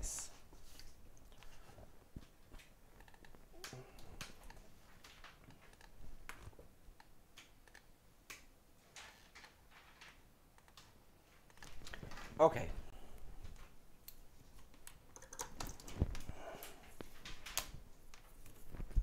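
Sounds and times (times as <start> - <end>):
computer mouse clicks: 3.0 - 4.6, 5.6 - 8.4, 10.6 - 10.9, 14.8 - 15.9.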